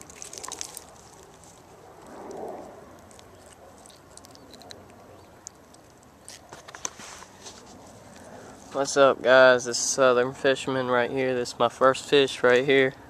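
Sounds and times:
dry leaves crackling underfoot: 0.0s - 8.9s.

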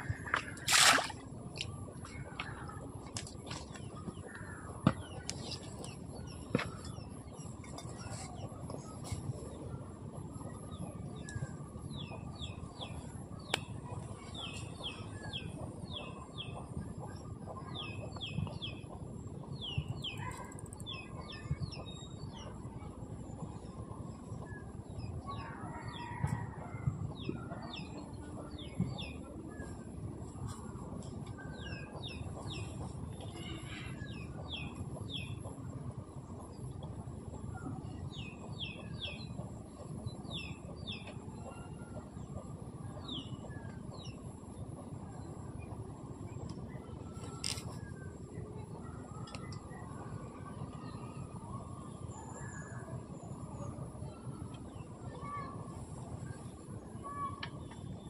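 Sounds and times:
low background noise: 0.0s - 58.0s.

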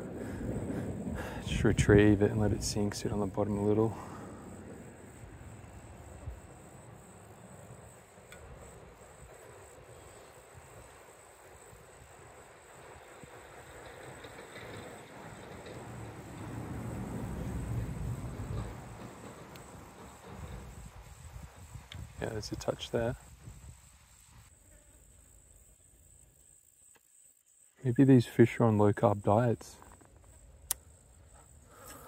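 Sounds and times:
insects chirring: 0.0s - 32.0s
small click: 8.3s - 8.5s
low uneven rumble: 12.1s - 23.6s.

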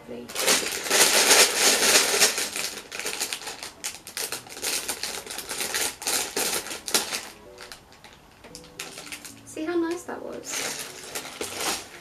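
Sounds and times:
plastic bricks rattling: 0.3s - 7.8s, 10.5s - 11.9s
plastic bag crinkling: 0.3s - 12.0s.

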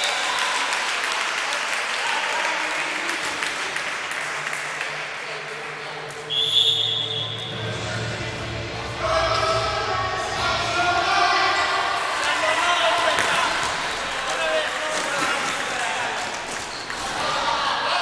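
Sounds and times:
crowd applauding and cheering: 0.0s - 5.8s
referee whistle blast: 6.3s - 7.6s.

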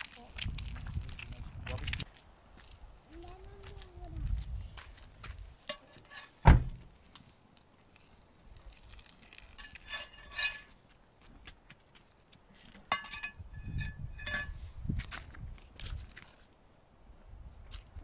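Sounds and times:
metal spatula scraping frypan: 5.7s - 6.4s, 9.5s - 10.7s, 12.9s - 14.6s.

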